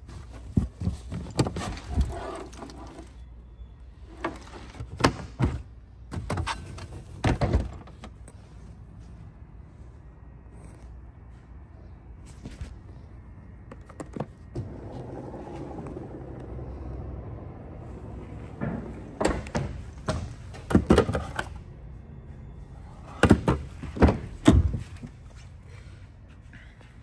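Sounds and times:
liftgate motor whirring: 14.5s - 20.1s.

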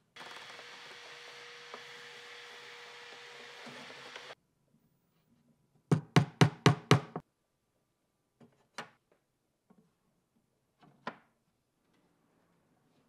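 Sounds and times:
saw blades clacking down: 0.2s - 4.4s.

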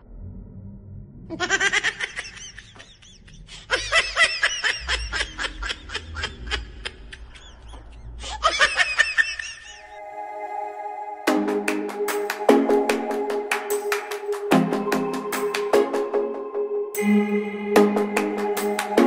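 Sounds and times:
woman laughing hard: 1.3s - 10.0s.

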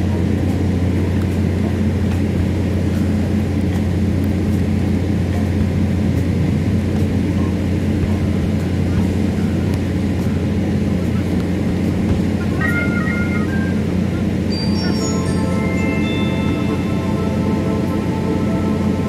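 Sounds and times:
steady low drone: 13.6s - 19.0s.

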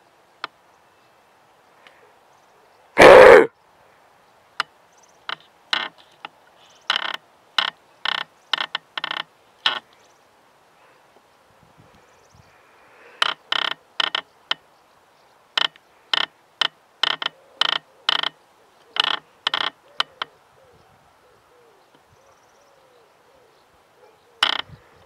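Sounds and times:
roe deer call squeaky piping: 3.0s - 3.5s.

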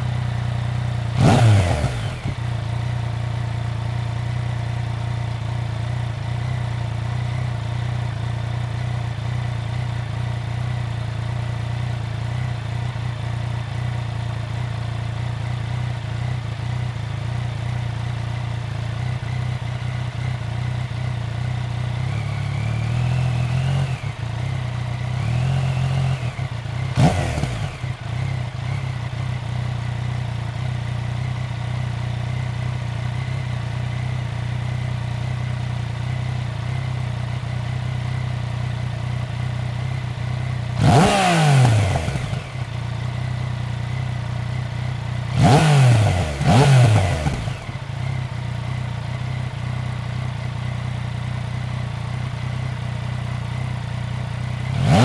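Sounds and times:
motorcycle engine idling: 0.0s - 55.0s
engine revving: 1.1s - 2.5s, 22.0s - 24.5s, 25.1s - 29.2s, 40.7s - 42.8s, 45.2s - 48.3s, 54.6s - 55.0s.

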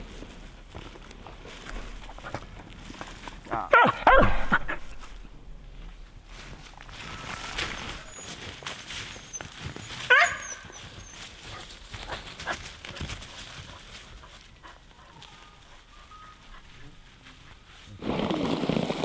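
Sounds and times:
dog barking: 3.7s - 4.8s, 10.1s - 10.8s
dog yelping: 9.0s - 11.3s.

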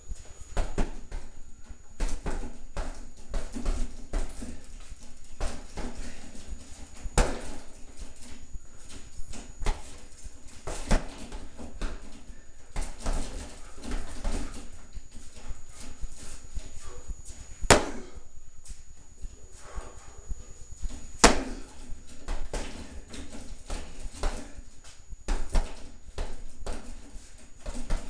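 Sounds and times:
punches on heavy bag: 7.1s - 7.6s, 17.6s - 18.2s, 21.2s - 21.8s
hard breathing: 12.2s - 18.4s, 19.2s - 20.8s.

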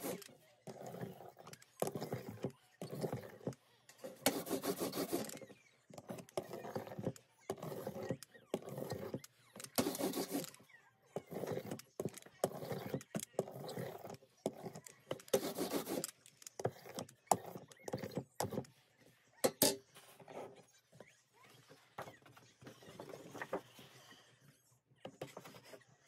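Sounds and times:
rubber roller rolling ink: 0.0s - 19.3s.

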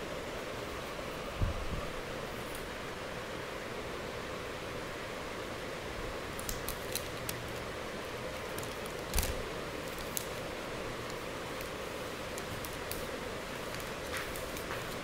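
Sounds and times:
steady hiss: 0.0s - 15.0s
plastic film crackling: 6.3s - 15.0s.

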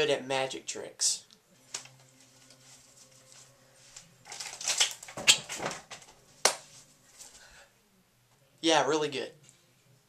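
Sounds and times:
playing cards rustling: 1.6s - 7.4s
sharp card snap: 4.4s - 5.8s, 6.4s - 6.7s.

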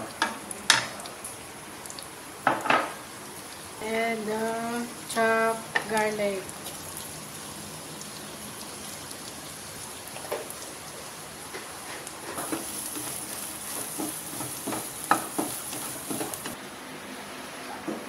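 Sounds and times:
food sizzling in a wok: 0.0s - 16.6s
wooden spatula scraping a pan: 11.7s - 16.6s.

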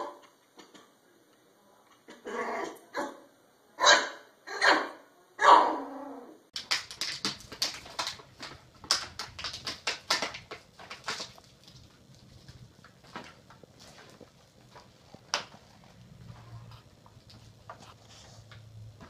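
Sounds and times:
puppy barking: 3.8s - 5.9s
plastic bottle clicking and crackling: 6.6s - 19.0s.

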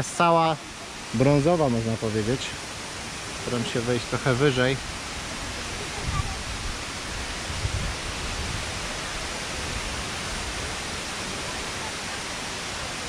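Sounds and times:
waterfall rushing: 0.0s - 13.0s
microphone rumble: 5.8s - 8.8s.

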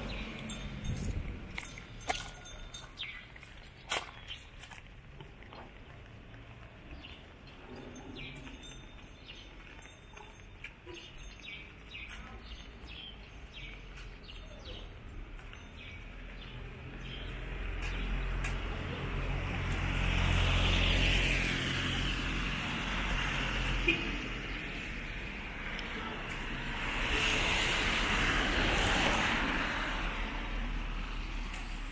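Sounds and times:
birds chirping: 1.6s - 3.4s, 6.7s - 18.6s
car passing on wet road: 17.4s - 31.9s.

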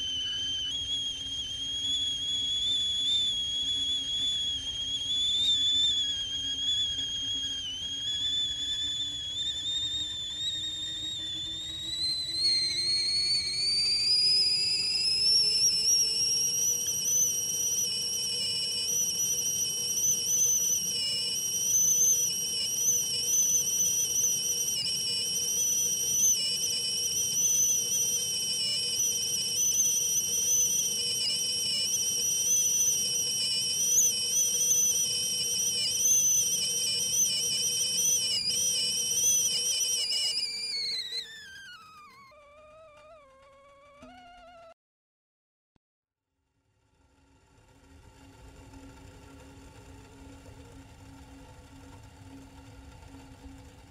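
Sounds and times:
kettle whistling: 0.0s - 44.8s.

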